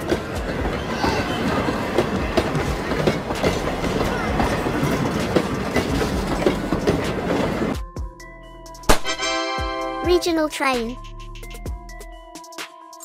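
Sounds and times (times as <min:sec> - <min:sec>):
train wheels rumbling: 0:00.0 - 0:07.8
wheels clicking over rail joints: 0:00.0 - 0:07.8.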